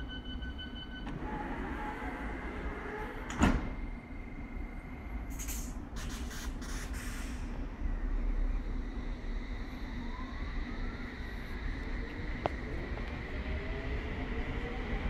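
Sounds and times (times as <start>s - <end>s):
train low running rumble: 0.0s - 15.0s
train doors closing bang: 3.0s - 3.9s
air hisses: 5.3s - 7.5s.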